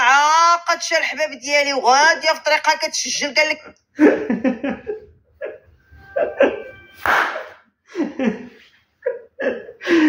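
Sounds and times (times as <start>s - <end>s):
man laughing stifled: 4.0s - 6.8s, 7.9s - 10.0s
brief steady tone: 5.9s - 7.1s.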